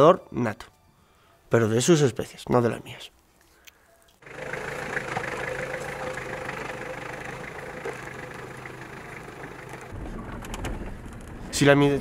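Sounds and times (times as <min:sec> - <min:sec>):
suv engine running: 0:04.2 - 0:11.5.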